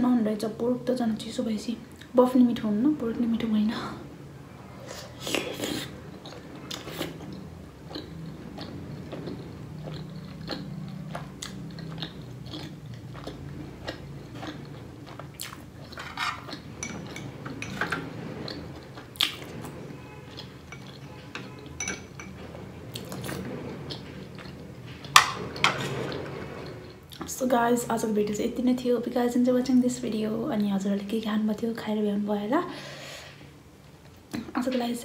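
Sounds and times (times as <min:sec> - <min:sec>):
chewing and mouth sounds: 0:05.1 - 0:17.6
spoon clinking against bowl: 0:20.7 - 0:22.3.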